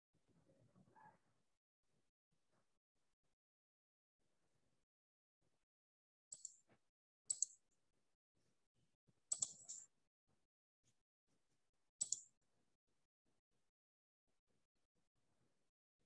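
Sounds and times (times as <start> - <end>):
computer mouse clicking: 6.3 - 6.6, 7.3 - 7.6, 9.3 - 9.8, 12.0 - 12.3.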